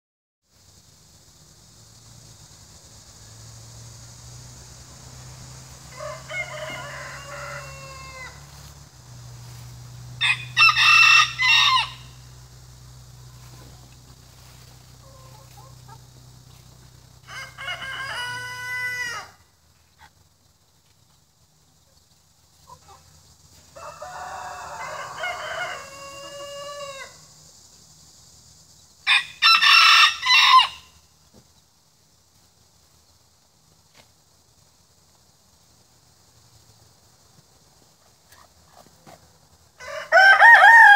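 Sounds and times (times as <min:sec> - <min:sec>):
rooster crowing: 0:05.8 - 0:08.7, 0:10.2 - 0:12.3, 0:17.2 - 0:19.4, 0:23.6 - 0:27.3, 0:29.0 - 0:31.0, 0:39.8 - 0:40.9.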